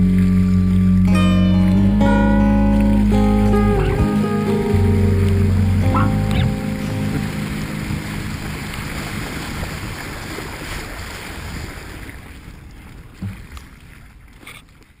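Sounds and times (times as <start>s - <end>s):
bike tyres rolling through puddles: 2.7s - 15.0s
wind buffeting microphone: 3.5s - 14.3s.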